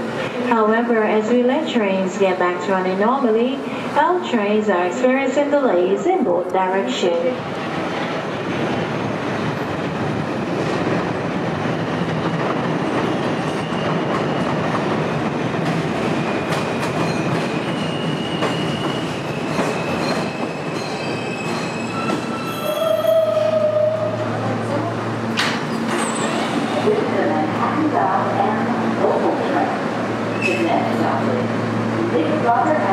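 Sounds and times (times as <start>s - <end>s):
train wheels rumbling on rails: 7.4s - 32.9s
high wheel squeal: 17.1s - 23.9s.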